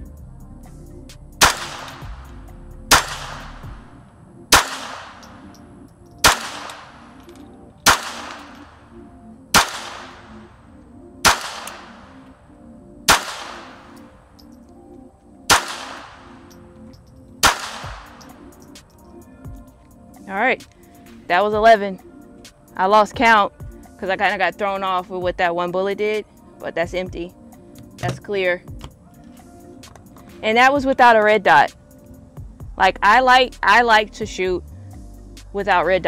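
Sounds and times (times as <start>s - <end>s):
pistol shots: 1.4s - 2.2s, 2.9s - 3.9s, 4.5s - 5.6s, 6.2s - 7.2s, 7.8s - 8.8s, 9.5s - 10.5s, 11.2s - 12.2s, 13.1s - 14.1s, 15.5s - 16.6s, 17.4s - 18.4s.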